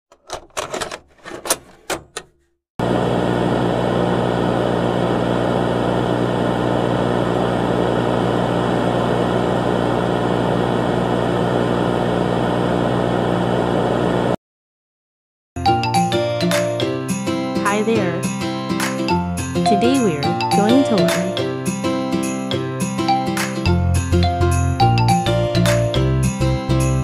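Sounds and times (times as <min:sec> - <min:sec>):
sharp clicks and knocks: 0:00.1 - 0:02.4
electronic hum with static: 0:02.8 - 0:14.4.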